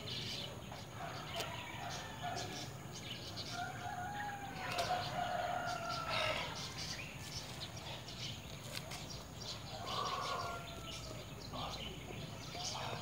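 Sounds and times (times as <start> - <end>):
rooster crowing: 3.5 - 6.7, 9.7 - 11.2.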